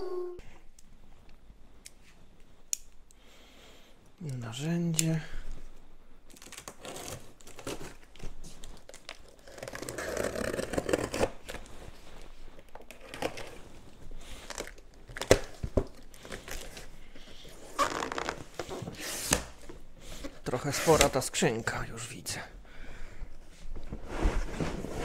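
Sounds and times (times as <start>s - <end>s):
cardboard flaps rustling and tearing: 6.3s - 11.6s
knife slitting packing tape: 9.3s - 11.4s.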